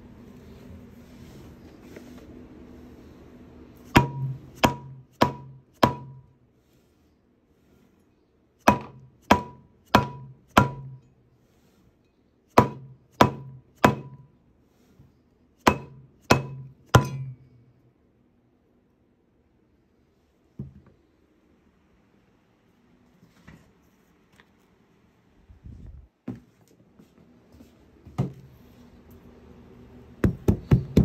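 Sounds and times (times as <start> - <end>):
mallet striking metal: 3.9 - 6.3, 8.6 - 11.0, 12.6 - 14.2, 15.6 - 17.4.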